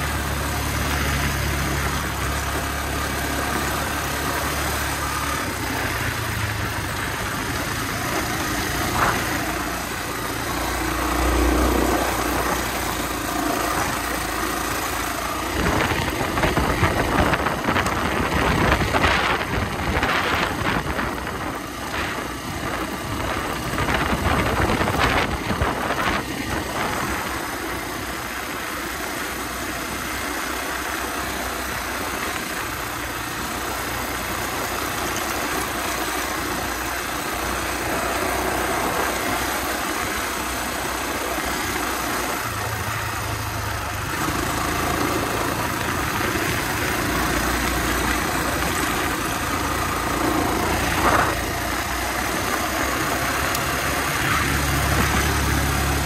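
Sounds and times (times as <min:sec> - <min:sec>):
knocks and rattles over rough track: 0:00.0 - 0:56.0
motorcycle engine running: 0:00.0 - 0:56.0.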